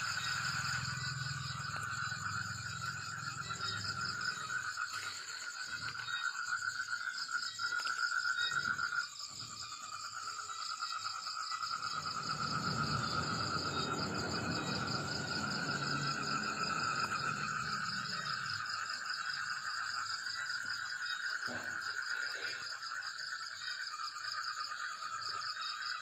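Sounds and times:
insects trilling: 0:00.0 - 0:26.0
low rumbling noise: 0:11.8 - 0:18.7.

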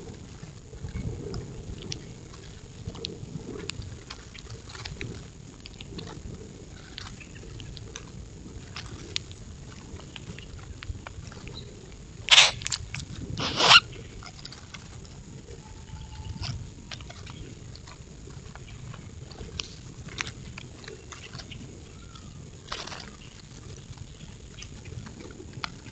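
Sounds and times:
birds pecking clicks: 0:03.2 - 0:15.1, 0:16.2 - 0:25.9
bursts of bird noise: 0:12.3 - 0:12.6, 0:13.4 - 0:13.9.

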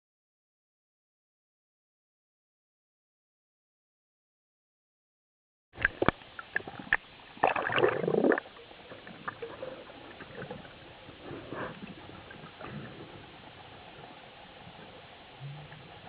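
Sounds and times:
bubbling water rush: 0:05.8 - 0:16.0.

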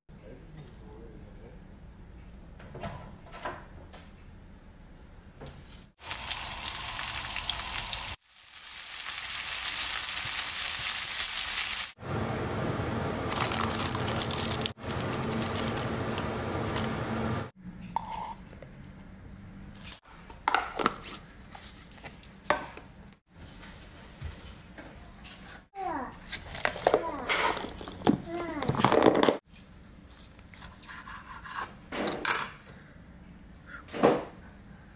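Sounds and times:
meat sizzling in oil: 0:06.0 - 0:12.0
food packed into plastic box: 0:13.3 - 0:16.9.

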